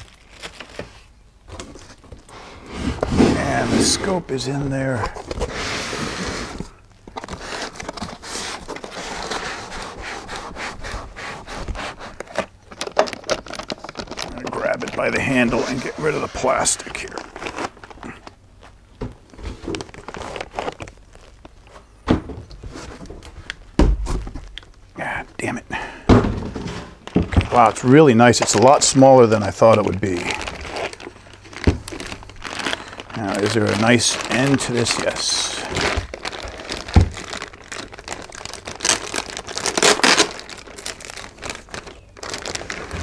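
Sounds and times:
plastic bag crinkling: 0:00.0 - 0:22.0, 0:26.6 - 0:43.0
cardboard and foam rustling: 0:00.0 - 0:25.2, 0:26.1 - 0:43.0
thump: 0:26.1 - 0:26.8.

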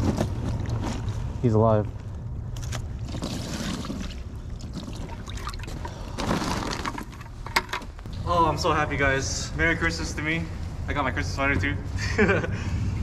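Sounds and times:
water pouring and splashing: 0:02.7 - 0:07.3.

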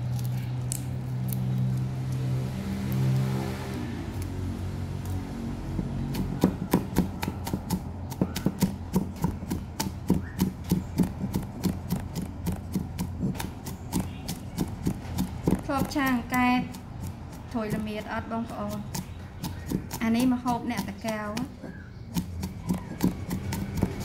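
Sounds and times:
cleaver chopping on wooden block: 0:05.6 - 0:24.0.

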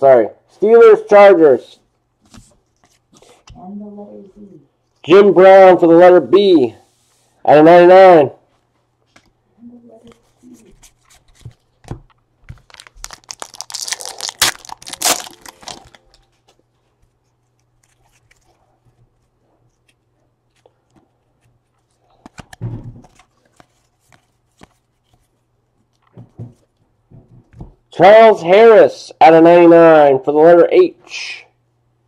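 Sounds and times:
wrapper tearing and crinkling: 0:12.5 - 0:16.2.

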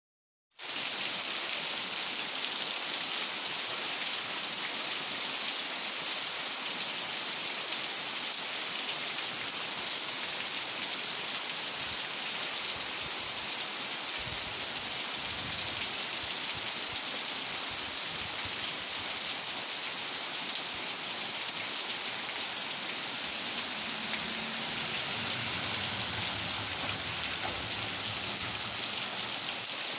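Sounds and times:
heavy rain hissing: 0:07.6 - 0:29.9.

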